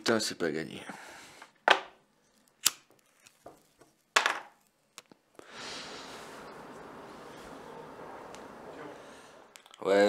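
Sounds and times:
outdoor background hiss: 3.4s - 10.0s.

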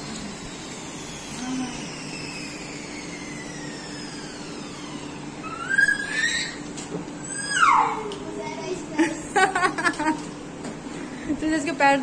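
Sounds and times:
whines falling in pitch: 0.4s - 8.2s.

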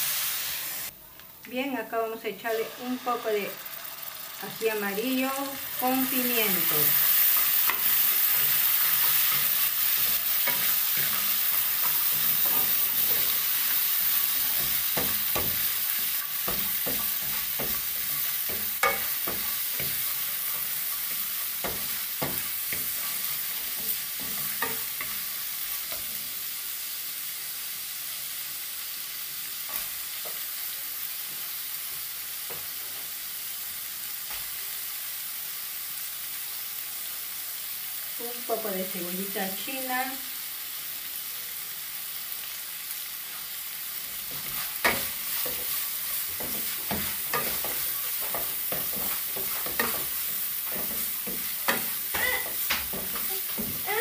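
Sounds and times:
meat sizzling in a frying pan: 0.0s - 54.0s.

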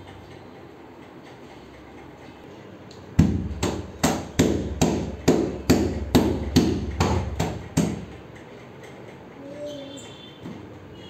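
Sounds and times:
hand slapping metal refrigerator: 3.1s - 8.2s.

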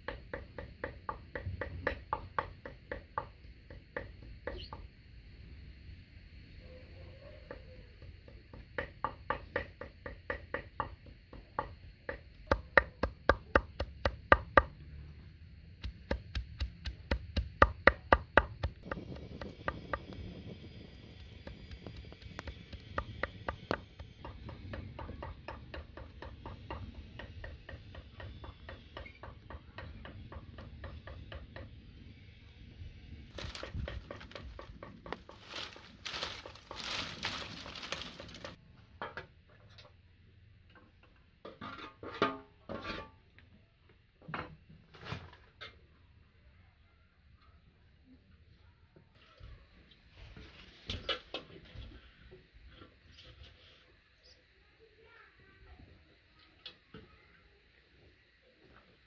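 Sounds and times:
twig fire crackling: 18.5s - 24.2s, 33.3s - 38.6s
dry twigs rustling: 33.3s - 38.6s.

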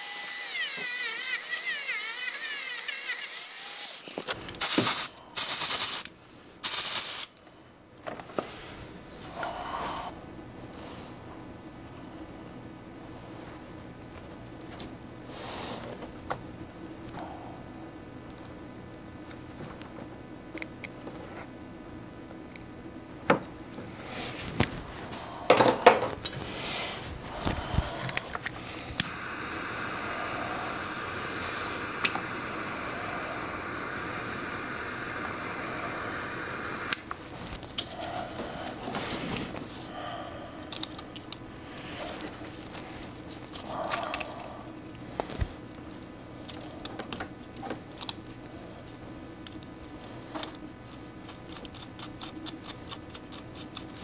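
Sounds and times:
heat gun fan hiss: 0.0s - 7.4s, 25.1s - 40.7s.

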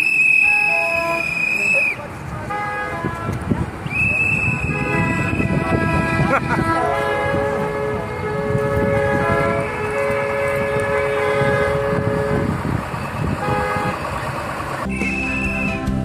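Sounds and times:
car horns honking: 0.0s - 15.9s
music: 14.8s - 16.0s.

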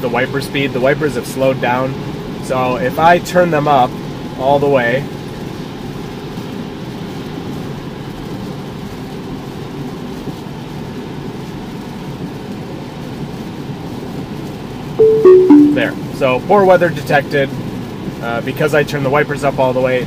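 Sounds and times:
rain on a car: 2.6s - 15.0s, 17.6s - 20.0s.

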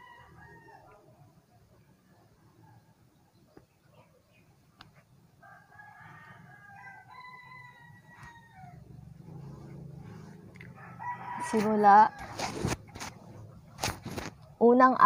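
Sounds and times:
rooster crowing: 0.0s - 1.1s, 5.4s - 12.6s
faint low hum: 0.0s - 15.0s.

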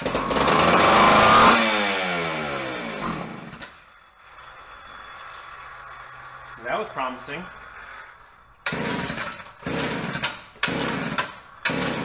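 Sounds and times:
chainsaw engine starting and dying: 0.0s - 3.8s, 8.6s - 12.0s.

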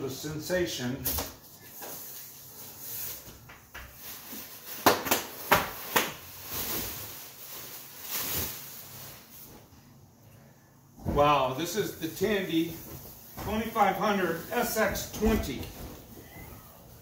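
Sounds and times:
bubble wrap rustling in box: 3.9s - 9.6s.

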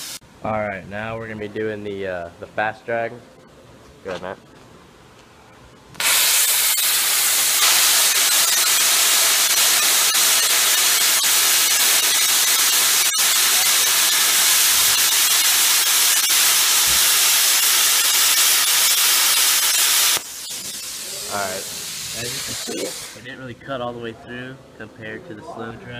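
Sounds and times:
plasma cutter hissing: 0.0s - 0.2s, 6.0s - 23.2s.

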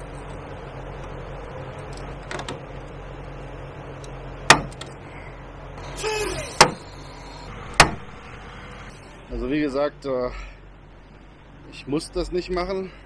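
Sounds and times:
steady low hum: 0.0s - 13.0s
short squeak: 5.8s - 7.5s.

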